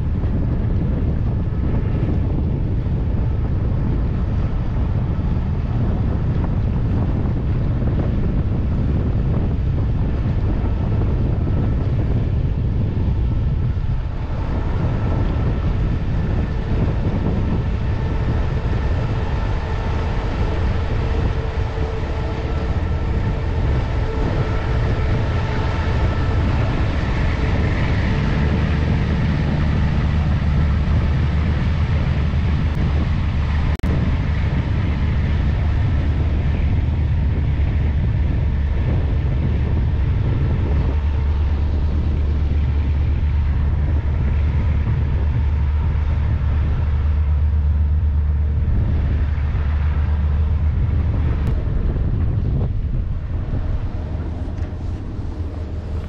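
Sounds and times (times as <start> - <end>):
ship engine drone: 0.0 - 56.0.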